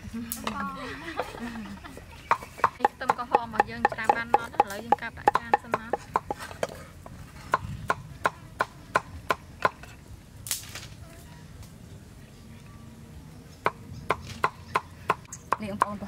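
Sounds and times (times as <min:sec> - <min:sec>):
cleaver chopping on wooden block: 0:02.3 - 0:06.8.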